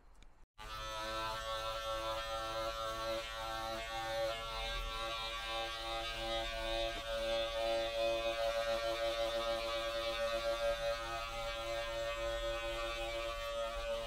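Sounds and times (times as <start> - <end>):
electric carpet clippers buzzing: 0.6 - 14.0.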